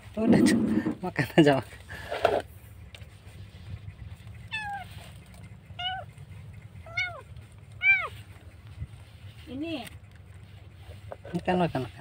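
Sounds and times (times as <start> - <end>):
kitten meowing: 4.5 - 4.9, 5.8 - 6.1, 6.9 - 7.2, 7.8 - 8.1.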